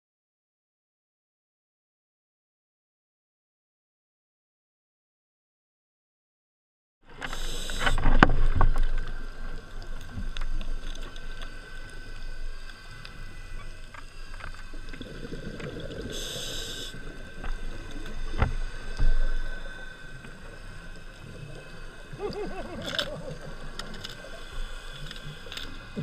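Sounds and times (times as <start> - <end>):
regulator breathing hiss: 7.1 - 8.2, 11.6 - 22.2, 24.1 - 26.0.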